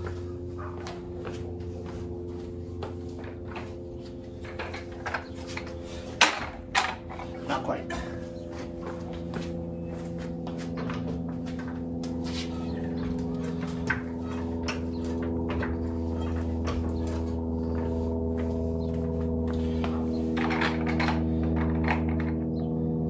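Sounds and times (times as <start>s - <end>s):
steady layered hum: 0.0s - 23.0s
floor jack clicks and knocks: 19.9s - 22.5s.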